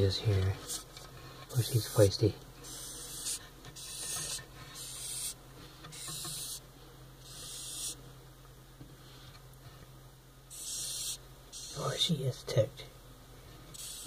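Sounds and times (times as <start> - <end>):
cockroach hissing: 0.6 - 0.9, 1.5 - 6.6, 7.2 - 8.0, 10.5 - 12.1, 13.7 - 14.0.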